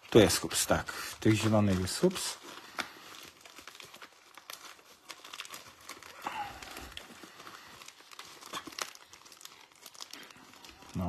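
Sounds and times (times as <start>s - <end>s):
plastic wrappers crinkling: 0.0s - 11.0s.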